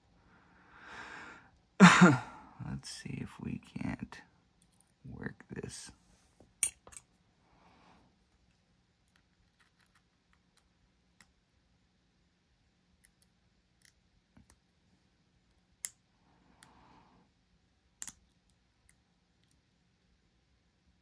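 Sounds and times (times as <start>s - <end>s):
lock pick clicking in a lock: 18.0s - 18.3s.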